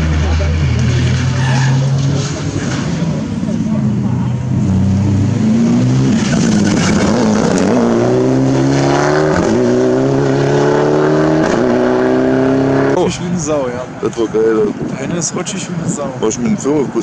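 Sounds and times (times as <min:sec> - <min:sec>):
car engine accelerating: 0:00.0 - 0:13.0.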